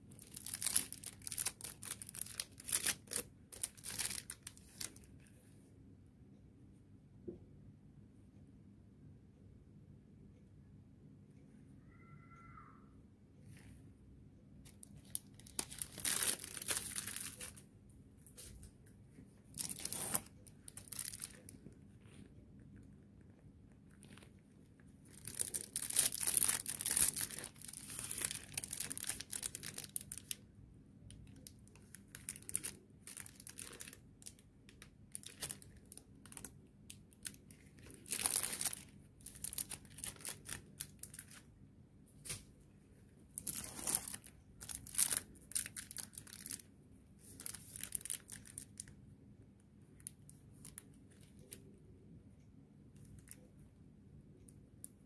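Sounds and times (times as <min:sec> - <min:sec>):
plastic sleeves crinkling: 0:00.0 - 0:05.3, 0:14.6 - 0:17.6, 0:19.4 - 0:30.4, 0:31.1 - 0:41.5, 0:43.3 - 0:49.0, 0:50.0 - 0:51.6.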